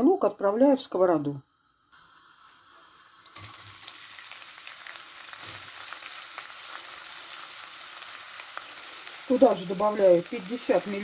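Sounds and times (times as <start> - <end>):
onion sizzling in frying pan: 2.0 - 11.0.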